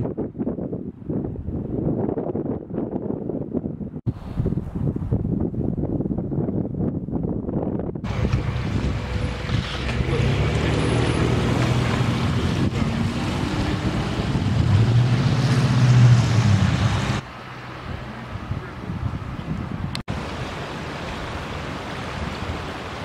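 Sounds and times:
wind buffeting microphone: 0:00.0 - 0:23.0
vehicle engine hum: 0:08.0 - 0:20.1.

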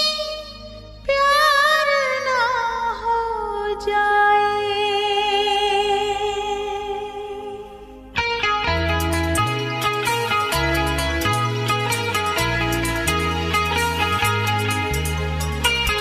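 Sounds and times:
soft low accompaniment: 0:00.0 - 0:16.0
strummed guitar: 0:08.1 - 0:16.0.

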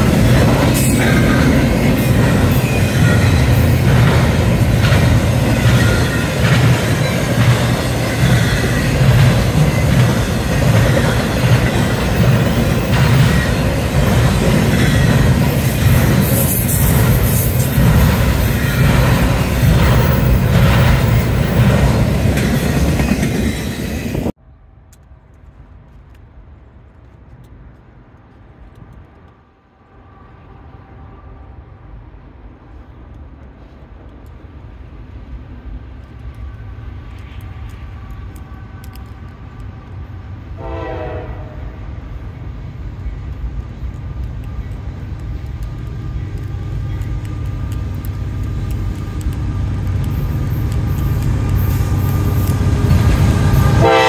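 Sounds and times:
diesel locomotives rumbling: 0:00.0 - 0:54.0
freight train cars stopping: 0:00.0 - 0:54.0
train horn: 0:29.9 - 0:31.8, 0:40.6 - 0:41.9, 0:53.4 - 0:54.0.

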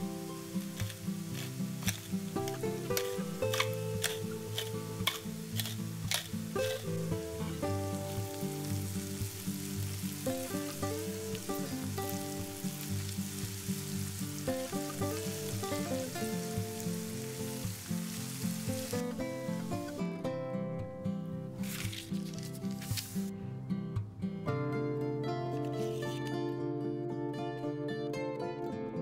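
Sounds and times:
vegetables sizzling in a frying pan: 0:00.0 - 0:19.8, 0:21.6 - 0:23.3
background music: 0:00.0 - 0:29.0
spatula stirring in a pan: 0:00.4 - 0:07.4.

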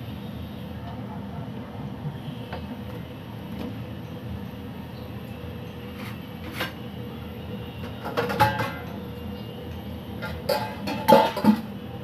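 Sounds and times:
gas burner rumble: 0:05.1 - 0:12.0.

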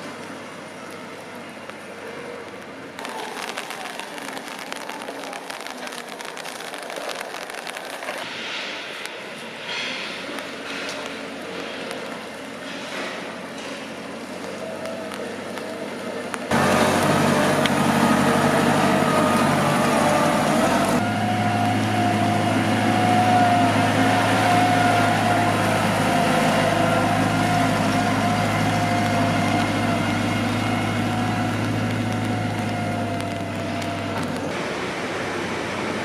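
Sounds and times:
platform truck humming and whining: 0:07.4 - 0:36.0.

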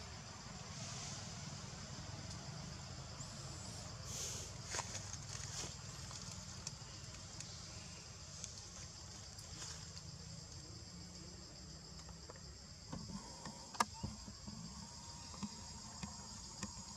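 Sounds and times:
insect chorus droning: 0:00.0 - 0:16.9.

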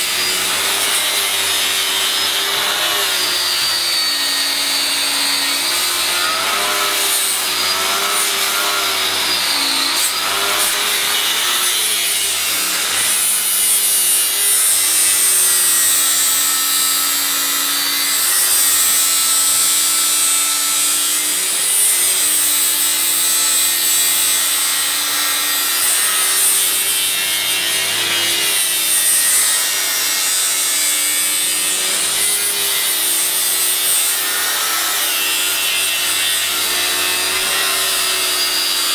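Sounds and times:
angle grinder grinding steel: 0:00.0 - 0:38.9.

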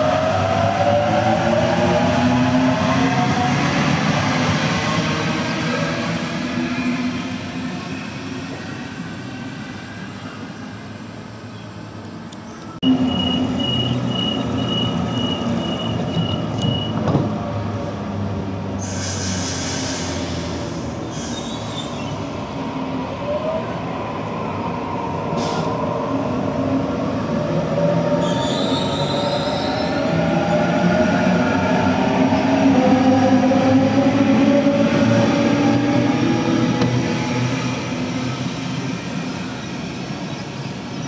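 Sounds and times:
pulsed door-closing warning tone: 0:12.8 - 0:17.0.

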